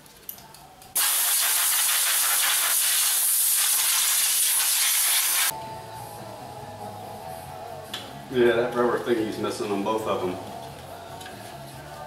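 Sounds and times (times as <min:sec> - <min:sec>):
pressurised spray hissing: 0:01.0 - 0:05.5.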